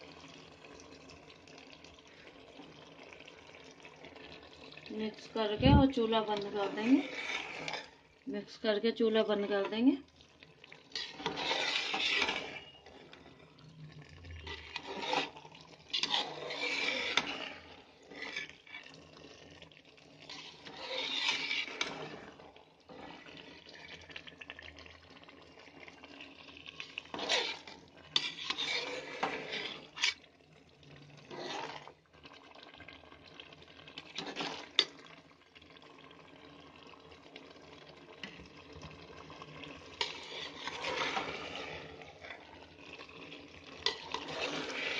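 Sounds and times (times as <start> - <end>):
spoon scraping metal pot: 5.1 - 10.0, 10.7 - 13.6, 14.2 - 19.2, 20.1 - 23.7, 26.8 - 30.3, 31.2 - 32.0, 34.0 - 35.1, 39.9 - 43.0, 43.7 - 44.9.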